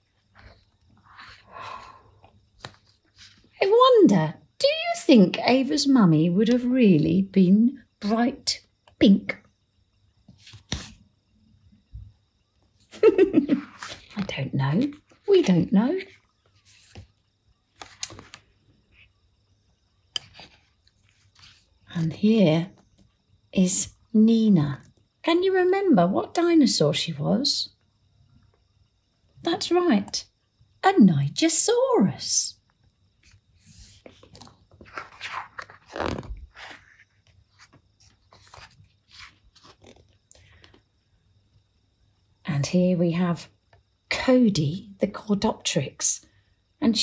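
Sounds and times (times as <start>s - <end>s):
book pages rustling and tapping: 2.2s - 3.6s, 10.3s - 11.0s, 13.6s - 17.1s, 17.8s - 18.5s, 20.2s - 21.7s, 33.2s - 40.8s.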